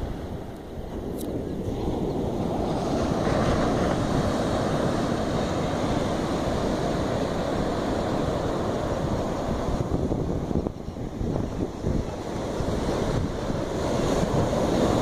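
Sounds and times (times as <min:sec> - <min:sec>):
wind rumbling on microphone: 0:00.0 - 0:15.0
surf breaking on beach: 0:01.4 - 0:15.0.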